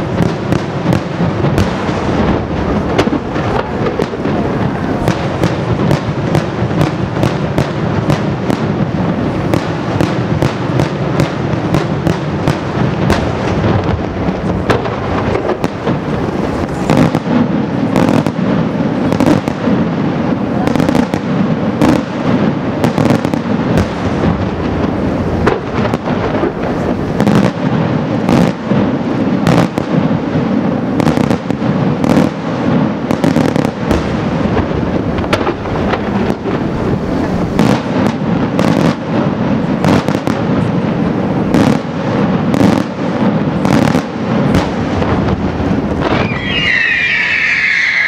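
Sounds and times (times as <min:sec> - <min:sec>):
fireworks shells bursting: 0:44.5 - 0:48.0.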